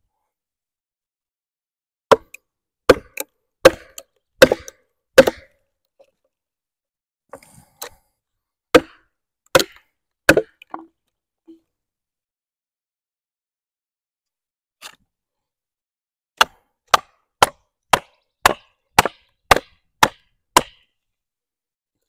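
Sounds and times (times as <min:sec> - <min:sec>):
mallet striking a hatchet: 0:02.1 - 0:05.5, 0:08.8 - 0:09.0, 0:09.6 - 0:10.6, 0:16.4 - 0:20.9.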